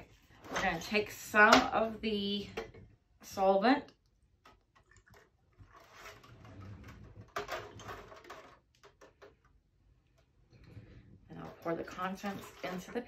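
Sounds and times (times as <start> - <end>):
liquid pouring into metal cup: 4.5 - 7.9.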